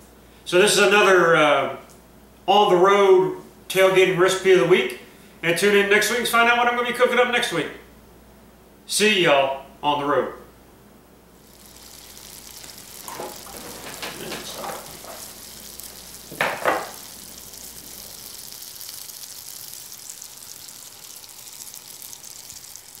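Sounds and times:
shaker bottle sifting hiss: 11.4s - 23.0s.

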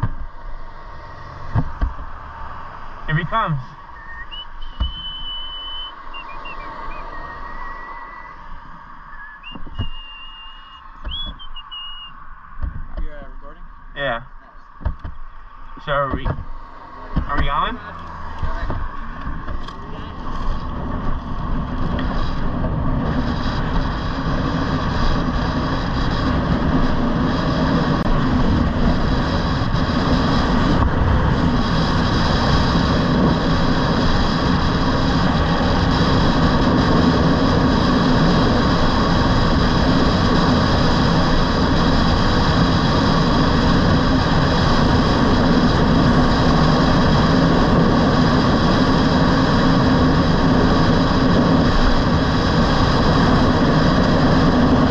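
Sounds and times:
high whining tones: 0.0s - 22.4s
wind and road noise: 0.0s - 54.9s.

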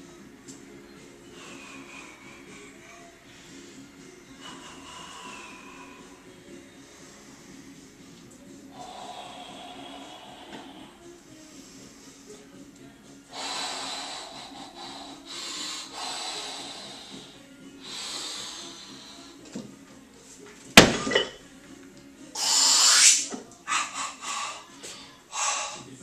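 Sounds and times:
man breathing in hard: 1.2s - 12.4s, 13.3s - 19.6s, 23.7s - 26.0s
loud forceful breath: 1.3s - 7.8s, 8.7s - 12.3s, 13.3s - 19.4s, 22.4s - 26.0s.

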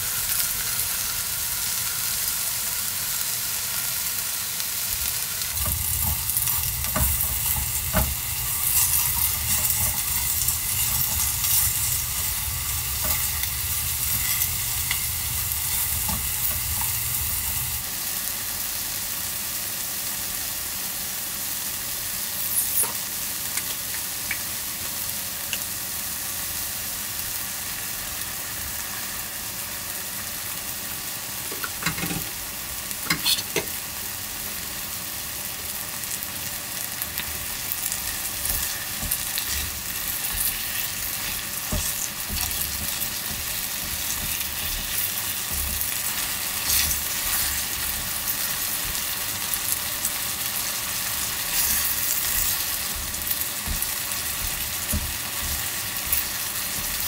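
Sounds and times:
food sizzling in a pot: 0.0s - 57.0s
chopsticks stirring: 5.6s - 17.8s, 38.1s - 49.6s, 51.2s - 57.0s.

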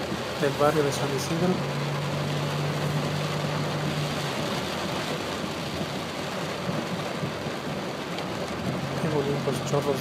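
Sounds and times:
rain on car roof: 0.0s - 10.0s
tyres on wet road: 0.0s - 10.0s.

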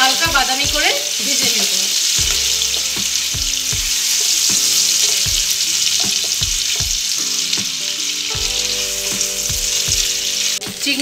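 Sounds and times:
prawns sizzling in oil: 0.0s - 11.0s
spatula knocking pan: 2.1s - 7.7s, 8.4s - 10.3s.

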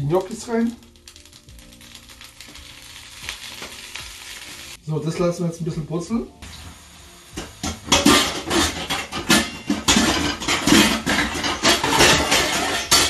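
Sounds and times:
dishes and cutlery clattering: 7.6s - 13.0s.

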